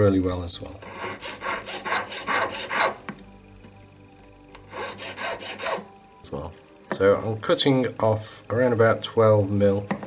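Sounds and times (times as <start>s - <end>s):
file rasping on metal: 0.8s - 3.0s, 4.7s - 5.9s.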